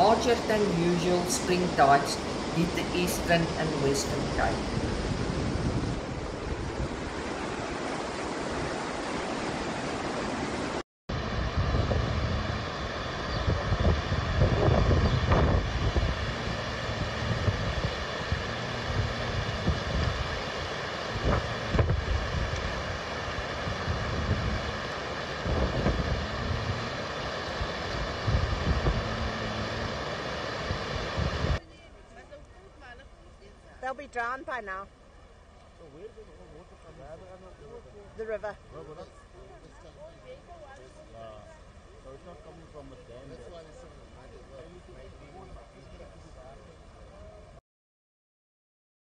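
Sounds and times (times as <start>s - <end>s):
wind buffeting microphone: 0.0s - 9.2s, 11.1s - 31.6s
steady rushing noise: 0.0s - 31.6s.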